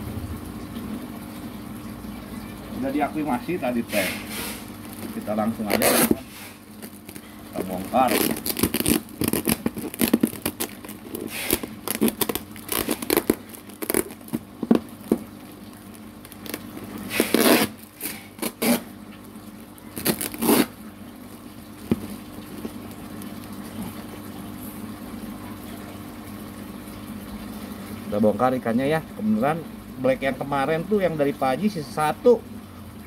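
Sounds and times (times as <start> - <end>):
plastic bags crinkling: 4.7 - 18.8, 19.8 - 20.7.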